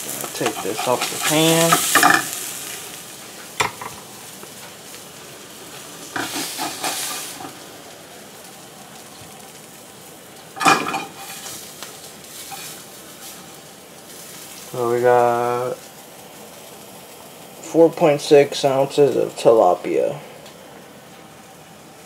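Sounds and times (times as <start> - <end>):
frying pan sizzling: 0.0 - 22.0
kitchen knocks and clatters: 0.3 - 2.3, 3.6 - 4.1, 10.6 - 11.5.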